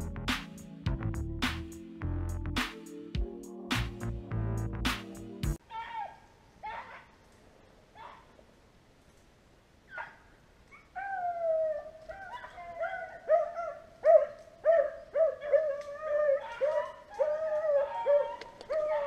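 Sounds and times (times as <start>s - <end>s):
dog howling: 11.0s - 19.0s
hounds baying: 12.1s - 19.0s.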